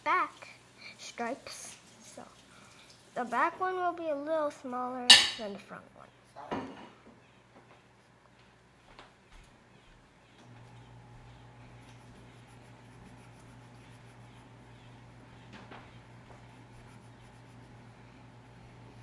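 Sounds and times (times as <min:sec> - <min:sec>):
steady low hum: 0:07.2 - 0:19.0
pencil scratching on paper: 0:11.1 - 0:19.0.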